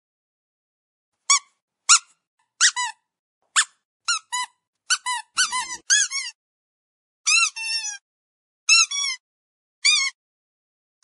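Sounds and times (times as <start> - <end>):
squeaky dog toy squeaking: 1.2 - 6.4, 7.3 - 8.0, 8.7 - 9.2, 9.8 - 10.2.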